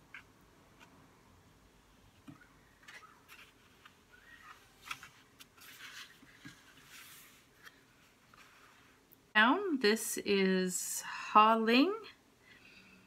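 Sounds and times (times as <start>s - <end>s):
paper rustle: 2.8s - 9.0s.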